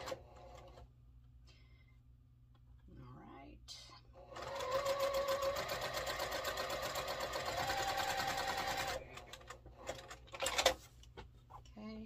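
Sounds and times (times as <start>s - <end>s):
sewing machine stitching: 0.0s - 0.8s, 4.3s - 10.8s.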